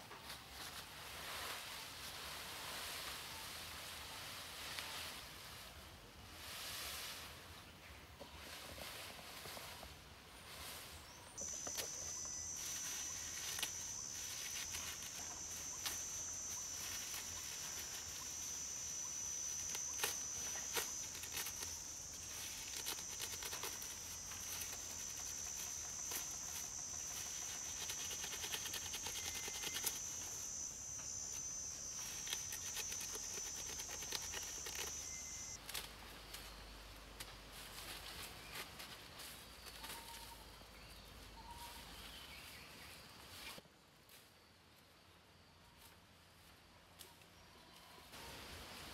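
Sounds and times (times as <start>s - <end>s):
high-pitched insect drone: 11.4s - 35.6s
leaf thatch rustling and clicking: 11.4s - 36.6s, 37.2s - 40.4s.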